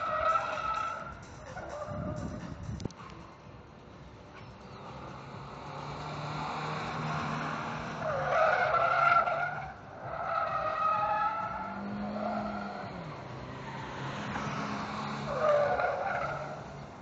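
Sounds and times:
tyres squealing: 0.0s - 2.2s, 6.4s - 16.9s
car engine: 0.0s - 17.0s.

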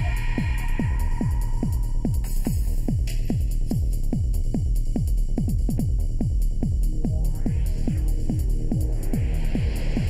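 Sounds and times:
synth bed: 0.0s - 2.7s
kick drum beat: 0.0s - 10.0s.

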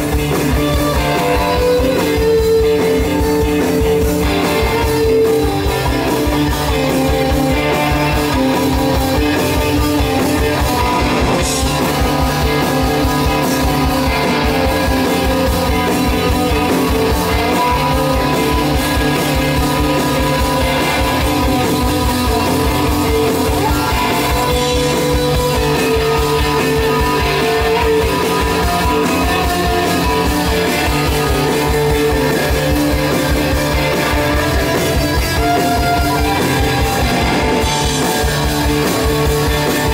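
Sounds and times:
rock band playing: 0.0s - 39.9s.

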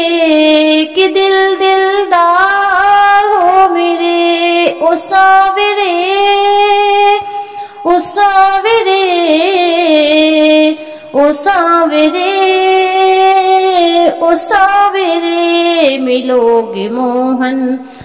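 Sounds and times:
woman singing devotional song: 0.0s - 18.0s.

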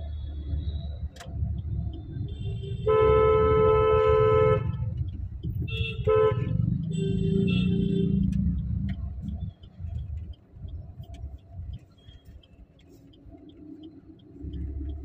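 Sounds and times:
road traffic rumbling: 0.0s - 15.0s
vehicle horns honking: 2.2s - 8.4s.

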